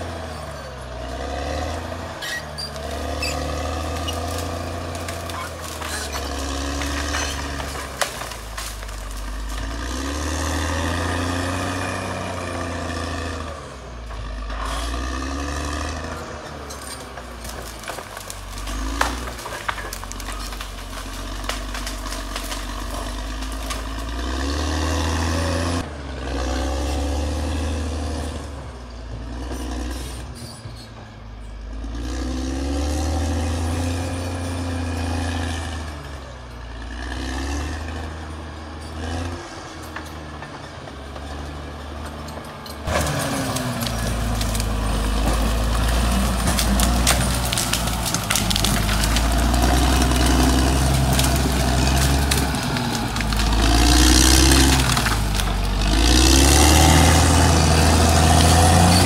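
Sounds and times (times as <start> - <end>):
bulldozer diesel engine revving: 0.0 - 59.0.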